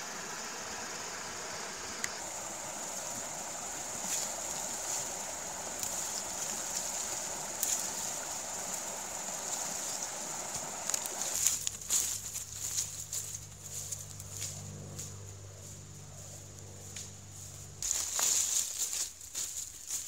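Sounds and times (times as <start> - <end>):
creek water running: 0.0 - 14.0
footsteps through dry leaves: 2.2 - 20.0.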